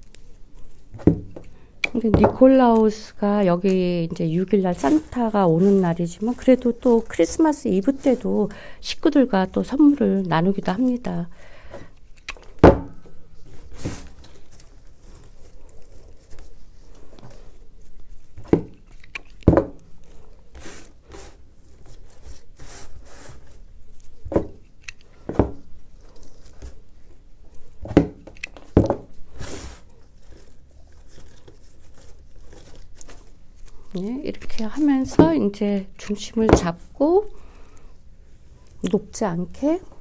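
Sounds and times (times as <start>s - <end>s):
fir needles rustling: 0.0s - 11.3s, 13.3s - 40.0s
stems scraping and rubbing: 2.4s - 11.0s, 20.0s - 24.2s, 29.2s - 36.7s.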